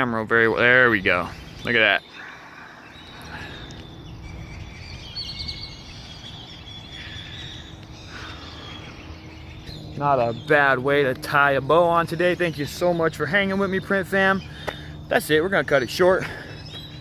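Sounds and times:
faint bird chirps: 1.1s - 11.3s.

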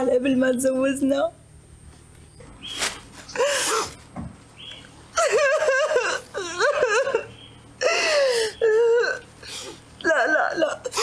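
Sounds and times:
woman wailing and sobbing: 5.2s - 9.2s.

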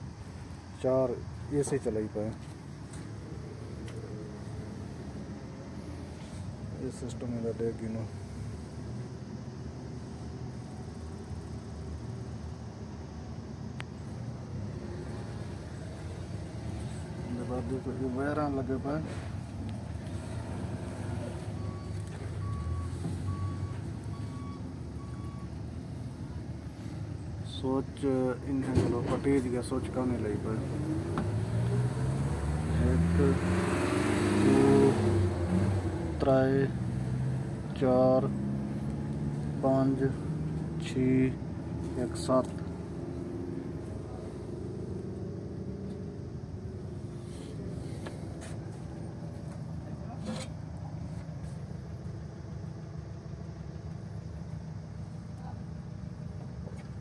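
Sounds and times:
diesel generator rumbling: 0.0s - 33.3s, 35.3s - 57.0s
electronic alarm beeps: 21.5s - 25.5s.

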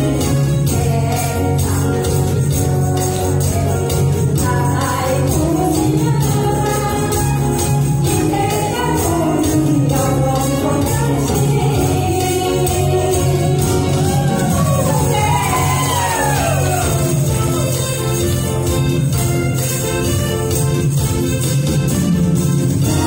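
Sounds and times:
woman singing into a microphone: 0.0s - 16.9s
pop backing track: 0.0s - 23.0s
tambourines jingling: 0.0s - 23.0s.

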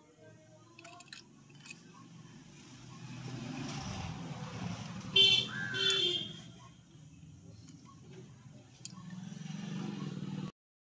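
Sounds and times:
road traffic: 0.2s - 10.6s
vehicle horn honking: 5.2s - 6.5s.

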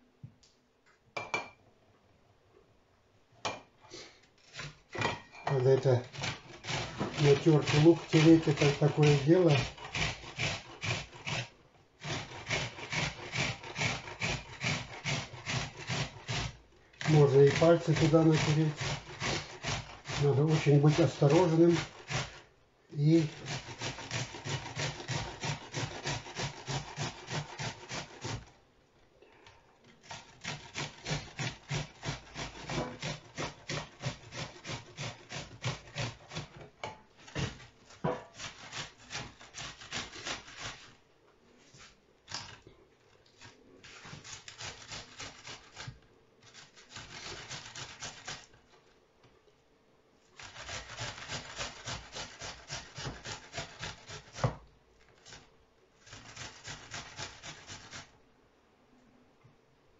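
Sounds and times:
onion rasping on a grater: 4.4s - 28.6s, 30.0s - 36.6s, 37.2s - 41.0s, 43.4s - 48.8s, 50.3s - 58.2s.

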